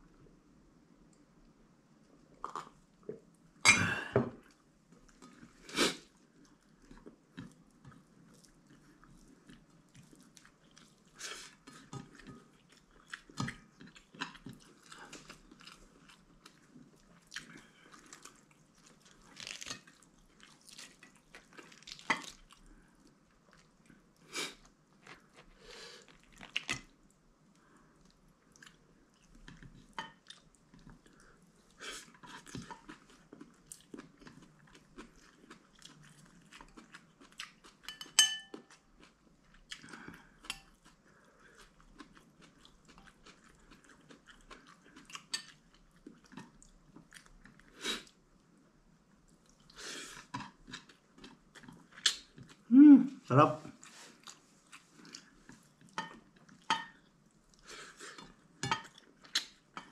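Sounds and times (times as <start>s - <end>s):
person chewing: 4.4s - 27.0s, 28.0s - 48.2s, 49.4s - 52.7s, 53.7s - 59.9s
tableware clinking: 37.9s - 38.6s.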